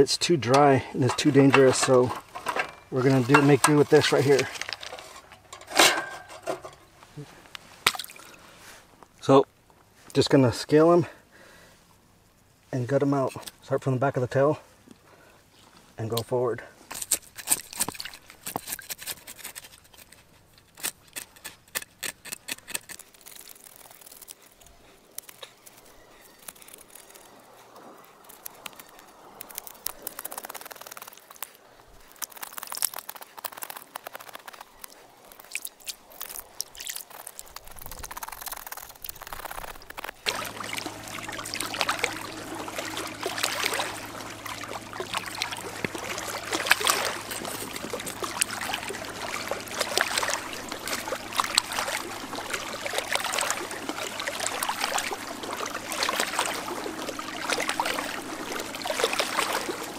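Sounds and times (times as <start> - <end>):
water splashing and trickling: 0.0 - 9.4, 16.7 - 59.9
knife scraping fish scales: 16.9 - 27.4.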